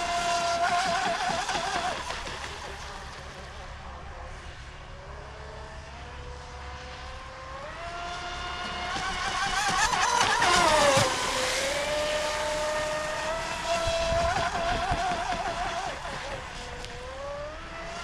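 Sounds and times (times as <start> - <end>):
rc speedboat motor whining: 0.0 - 18.0.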